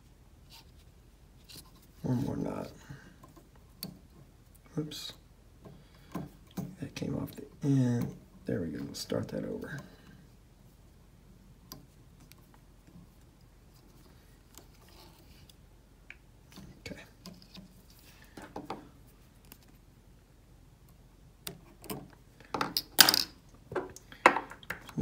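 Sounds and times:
thread and bobbin handling noises: 11.6s - 19.9s.

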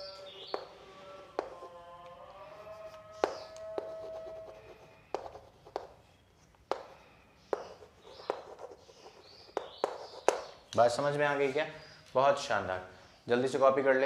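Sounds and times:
chalk tapping on chalkboard: 0.4s - 0.8s, 1.4s - 1.7s, 3.2s - 10.8s
chalk scratching: 1.4s - 1.8s, 2.5s - 10.7s.

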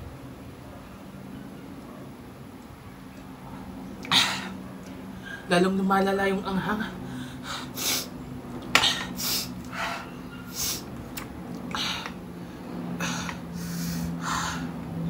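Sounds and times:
person breathing hard and sniffing: 7.0s - 8.1s, 8.8s - 10.9s, 11.7s - 14.8s.

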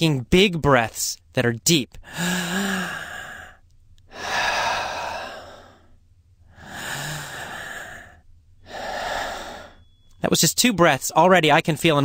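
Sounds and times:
voiced sigh: 2.0s - 9.9s
man breathing deeply: 2.0s - 10.2s.

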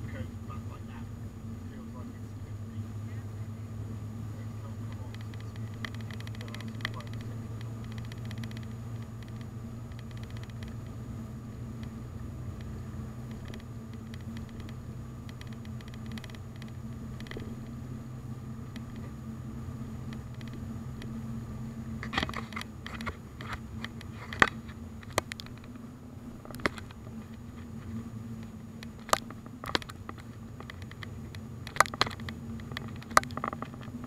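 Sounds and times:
car cabin engine and tyre drone: 0.0s - 34.0s
sharp clicks and knocks: 4.9s - 10.9s, 12.6s - 17.8s, 18.7s - 19.2s, 20.0s - 21.2s, 22.0s - 25.8s, 26.4s - 27.7s, 28.4s - 34.0s.

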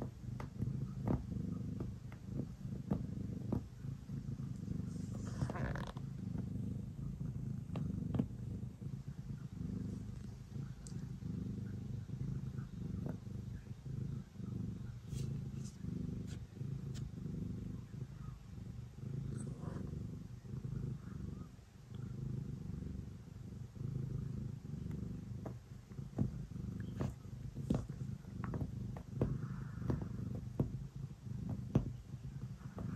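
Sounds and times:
cat purring: 0.0s - 32.9s
faint clicks: 9.9s - 11.2s.

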